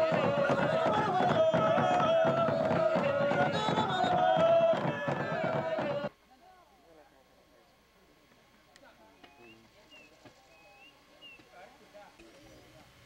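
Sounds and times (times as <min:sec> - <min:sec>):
quick repeated drumbeats: 0:00.0 - 0:06.1
voices chanting long high notes: 0:00.0 - 0:06.1.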